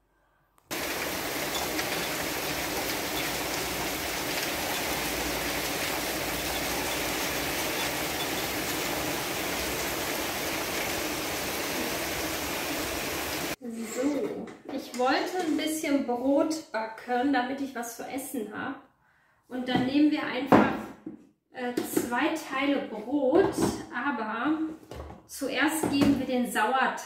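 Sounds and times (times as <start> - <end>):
heavy rain pouring: 0.7 - 13.6.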